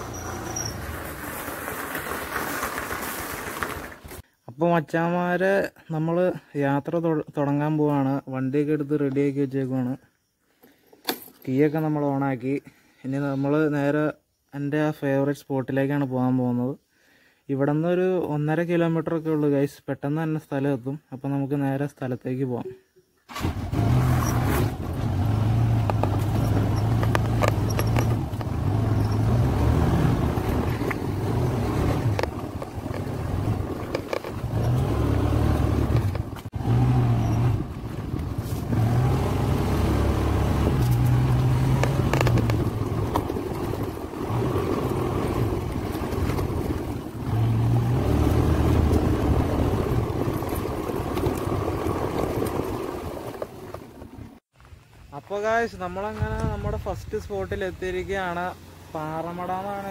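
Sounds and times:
motor scooter engine running: 0:25.5 - 0:47.3
knocks and rattles from bumps: 0:25.8 - 0:36.6.

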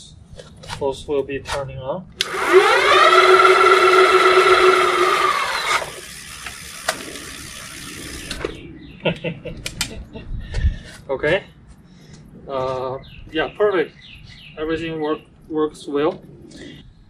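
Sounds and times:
electric motors whining: 0:02.2 - 0:08.7
quiet whir: 0:02.2 - 0:10.1.

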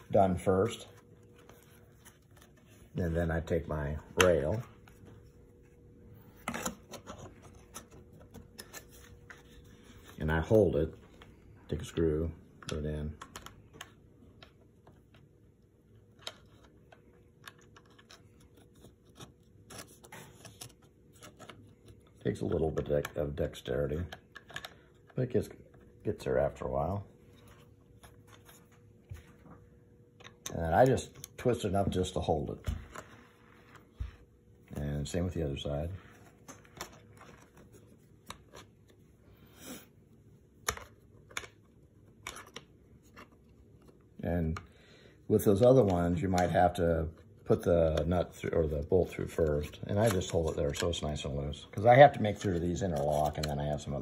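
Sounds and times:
small clicks and taps of plastic parts: 0:12.6 - 0:15.2, 0:24.0 - 0:25.8.

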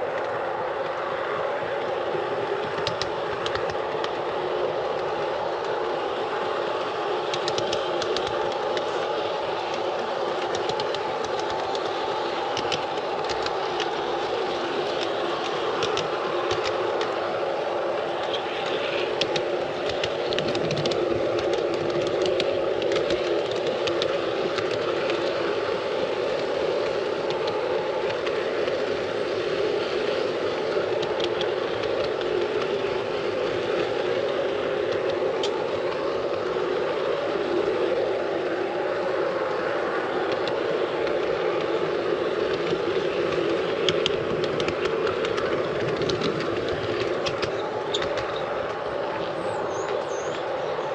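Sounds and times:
wheels clicking over rails: 0:00.0 - 0:50.9
model train motor whirring: 0:02.3 - 0:37.9.

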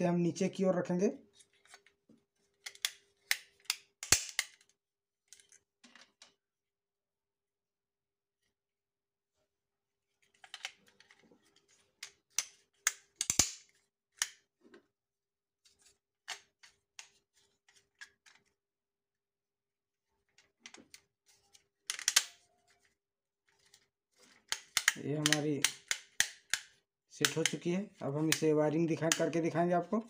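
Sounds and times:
plastic switch modules clicking: 0:24.5 - 0:29.4.

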